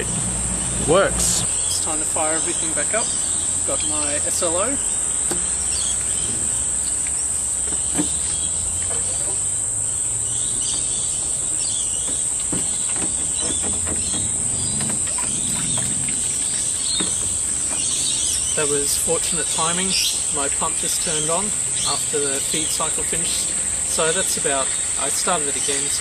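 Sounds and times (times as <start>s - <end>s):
high-pitched insect chorus: 0.0s - 26.0s.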